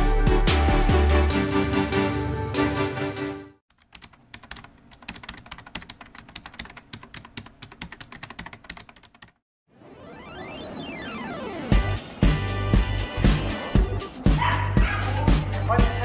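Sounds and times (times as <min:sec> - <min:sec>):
keyboard typing clicks: 0:03.7 - 0:09.4
electronic intro music: 0:09.7 - 0:15.8.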